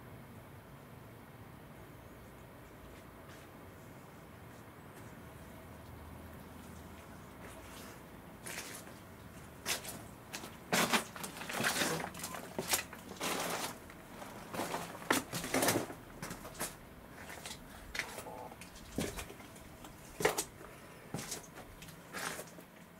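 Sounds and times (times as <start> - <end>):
footsteps crunching on leaves: 7.5 - 22.6.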